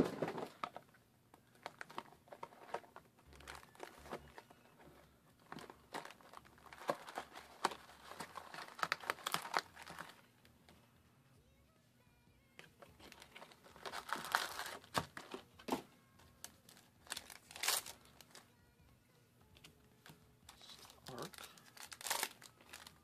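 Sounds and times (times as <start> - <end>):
packaging crinkling and tearing: 1.4 - 4.6, 5.4 - 10.3, 13.0 - 15.8, 16.4 - 18.4, 20.5 - 23.0.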